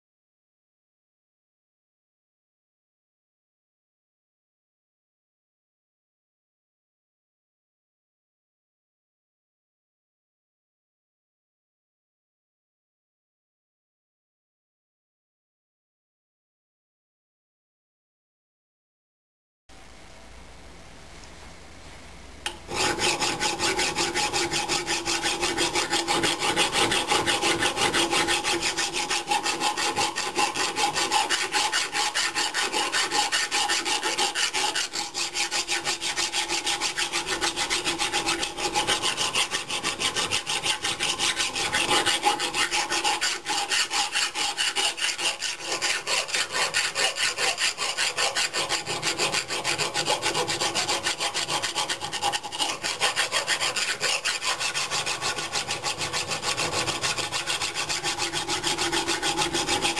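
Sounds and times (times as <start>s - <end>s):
file rasping on steel: 22.5s - 59.9s.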